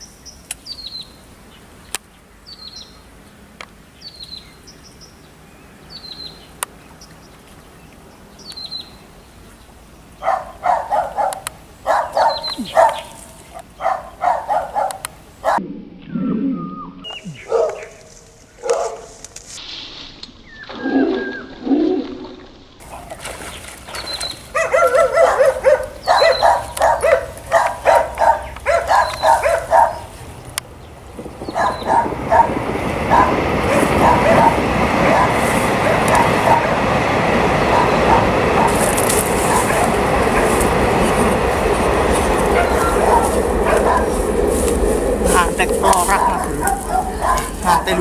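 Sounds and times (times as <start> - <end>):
bird chirping: 0.0 - 18.1, 20.4 - 21.6, 22.9 - 32.5, 42.4 - 44.2, 45.3 - 48.0
dog barking: 10.2 - 15.6, 17.4 - 17.9, 18.6 - 19.1, 24.5 - 30.1, 31.5 - 36.8, 37.6 - 40.6, 42.4 - 44.3, 45.8 - 48.0.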